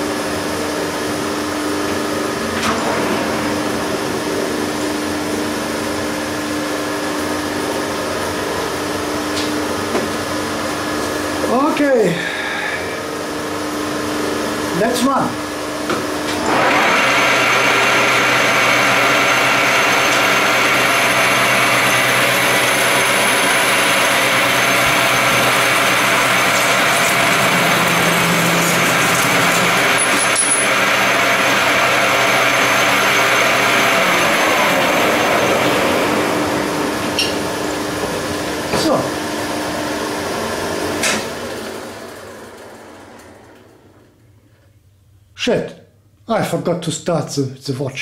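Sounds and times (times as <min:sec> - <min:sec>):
metal lathe cutting with whine: 0:16.3 - 0:43.4.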